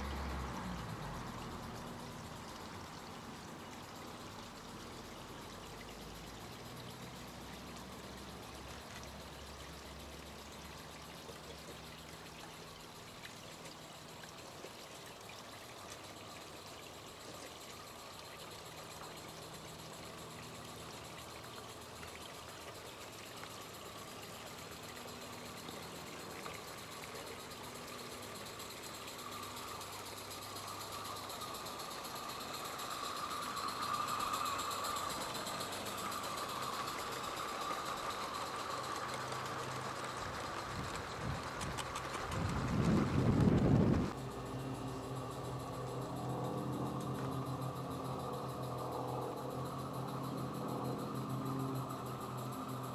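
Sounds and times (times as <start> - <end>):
steam locomotive hissing: 31.0 - 41.2.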